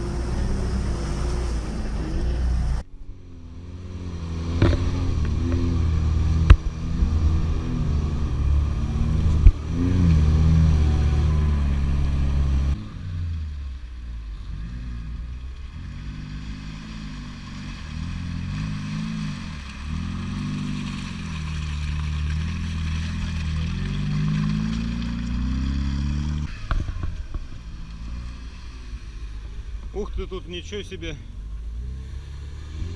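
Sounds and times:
car engine revving: 0:00.0 - 0:13.7, 0:14.3 - 0:32.9.

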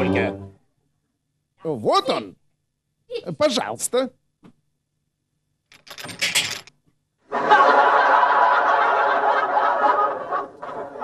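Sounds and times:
audience laughter: 0:07.3 - 0:11.0.

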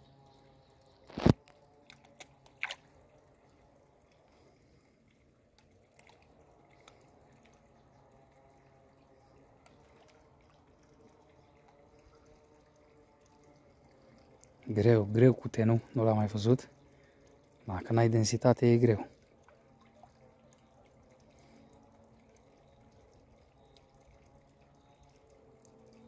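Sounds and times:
water drips: 0:00.0 - 0:26.0
fish slurping splash: 0:01.0 - 0:14.7.

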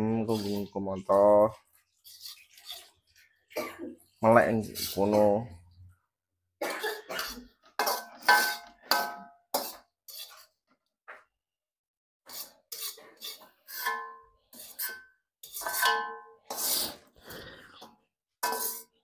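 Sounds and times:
metal spatula scraping a wok: 0:00.0 - 0:00.8, 0:01.8 - 0:03.6, 0:04.5 - 0:05.4, 0:07.2 - 0:10.6, 0:12.2 - 0:19.0.

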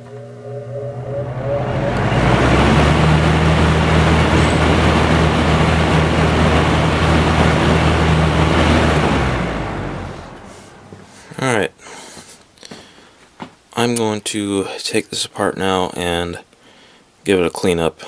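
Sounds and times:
box fan motor hum: 0:00.0 - 0:11.4
rush of moving air: 0:00.4 - 0:11.4.

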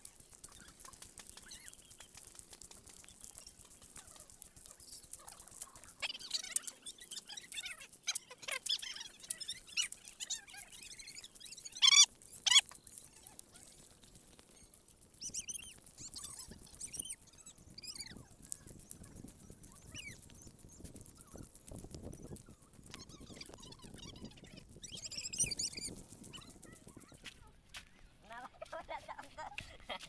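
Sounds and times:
birds chirping and calling: 0:00.4 - 0:27.9
sharp bird calls: 0:02.9 - 0:12.7, 0:14.5 - 0:26.0.

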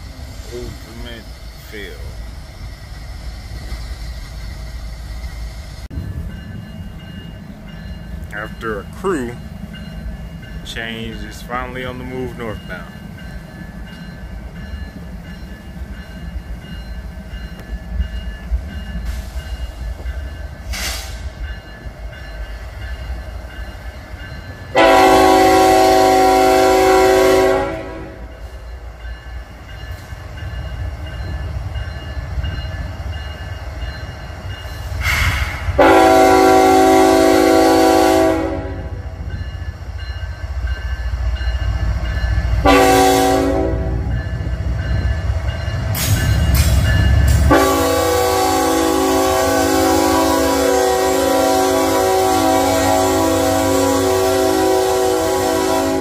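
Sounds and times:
locomotive engine rumble: 0:00.0 - 0:56.0
train air horn blasts: 0:24.7 - 0:28.4, 0:35.0 - 0:39.0, 0:42.6 - 0:44.1, 0:47.5 - 0:56.0.

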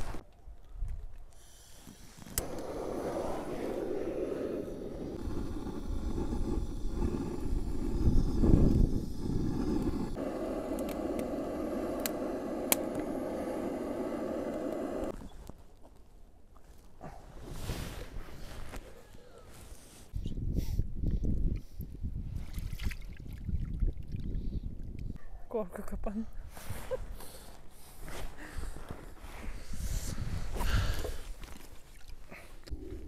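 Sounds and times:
torch igniter clicks: 0:01.4 - 0:03.2, 0:06.1 - 0:15.6
gas torch flame rushing: 0:01.4 - 0:15.2.

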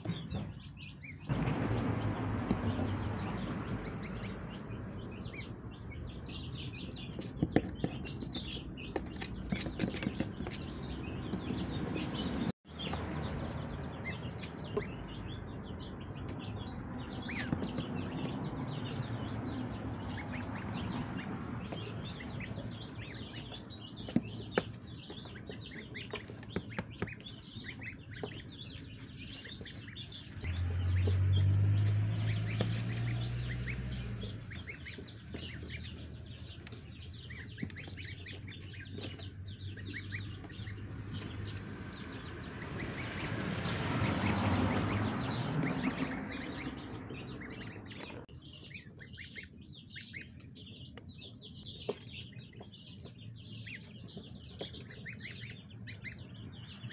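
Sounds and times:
goslings and ducklings peeping: 0:00.0 - 0:56.9
low rumble: 0:01.2 - 0:06.5.

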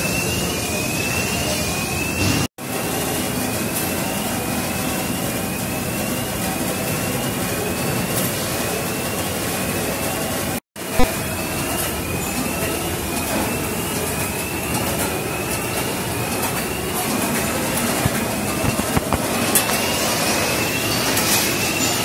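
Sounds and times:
packing machinery din: 0:13.3 - 0:22.0.

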